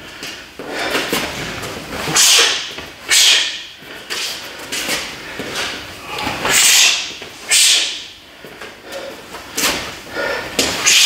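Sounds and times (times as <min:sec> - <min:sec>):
man's sharp hissing exhalations: 0:06.2 - 0:08.1.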